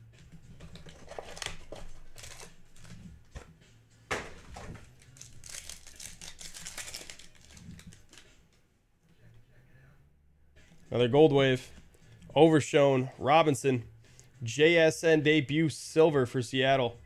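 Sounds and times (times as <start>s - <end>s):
foil pack crinkling and tearing: 0.8s - 3.0s, 4.8s - 8.3s.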